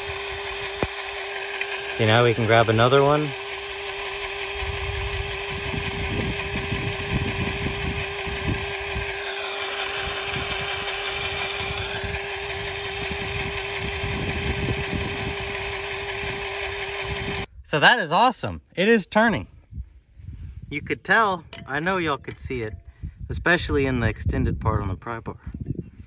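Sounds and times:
cordless grease gun motor whining: 0.0 - 17.5.

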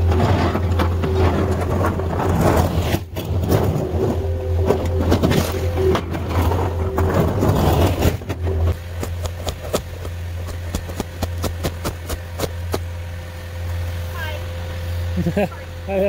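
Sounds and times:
blade scraping ice: 0.0 - 4.2, 4.9 - 8.7
diesel engine running: 0.0 - 16.0.

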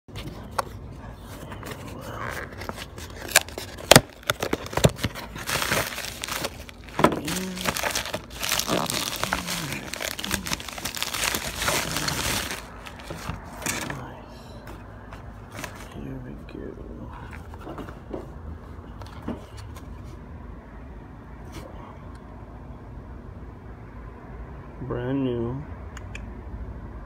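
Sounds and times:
plastic envelope crinkling: 0.1 - 14.0, 15.5 - 16.0
cardboard box snapping open: 2.5 - 13.9.

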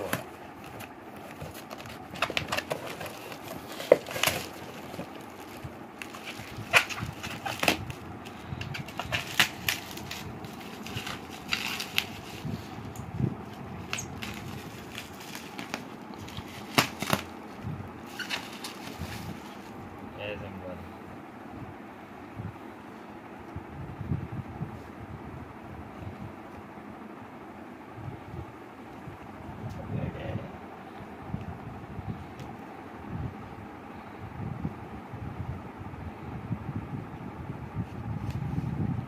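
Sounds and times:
packaging crinkling and rustling: 0.0 - 19.8.

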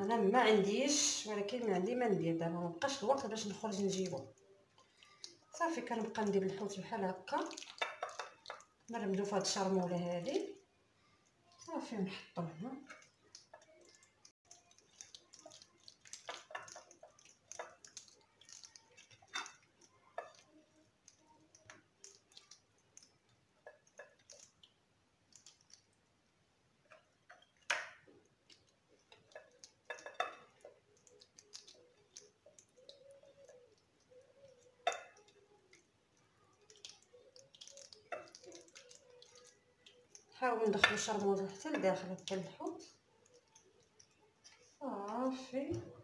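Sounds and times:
hands rubbing marinade into fish: 36.7 - 39.5.

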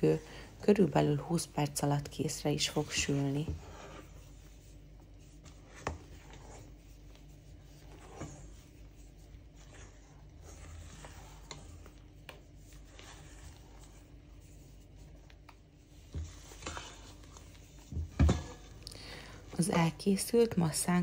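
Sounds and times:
spatula scraping batter: 0.0 - 20.8.

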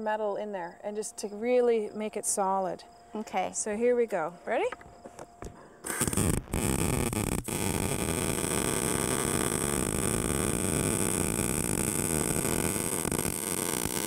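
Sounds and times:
welding arc crackling: 5.8 - 14.0.

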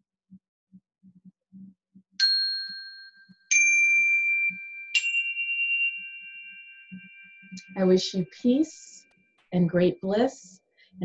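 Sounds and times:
metal chimes ringing: 2.2 - 7.8.

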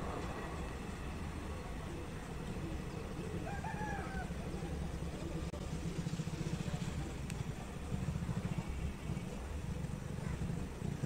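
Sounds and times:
train rumbling along track: 0.0 - 11.0.

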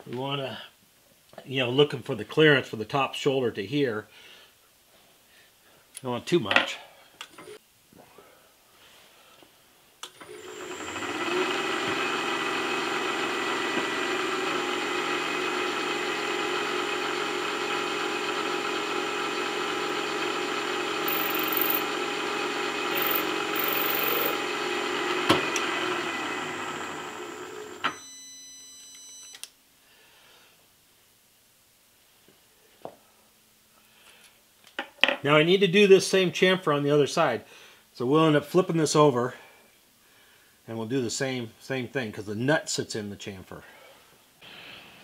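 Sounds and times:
milling machine whining: 10.2 - 28.0
boring tool cutting metal: 19.6 - 24.5.

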